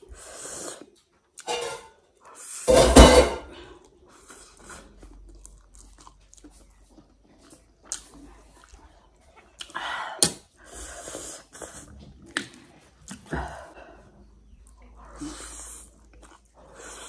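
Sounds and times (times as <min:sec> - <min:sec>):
chewing noodles: 0:03.7 - 0:17.0
wet mouth sounds: 0:04.2 - 0:13.8.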